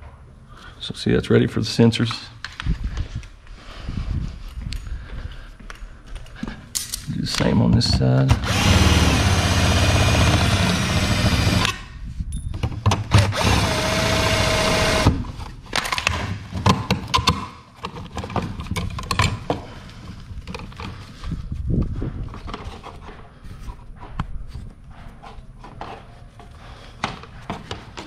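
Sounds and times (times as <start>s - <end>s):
cordless drill whining: 8.4s - 11.8s, 13.1s - 15.2s.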